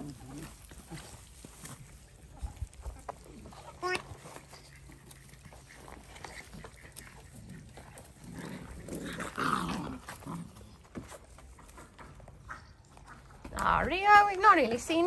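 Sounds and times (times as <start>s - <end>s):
puppies making vocal noises: 0.0s - 14.0s.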